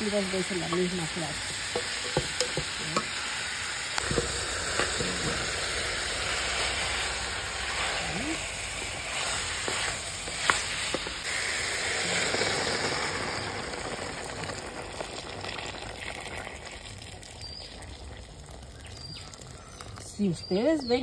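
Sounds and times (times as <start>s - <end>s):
meat and vegetables sizzling in pan: 0.0s - 21.0s
water hissing in hot pan: 0.0s - 21.0s
wooden spoon knocking pan: 1.7s - 3.1s.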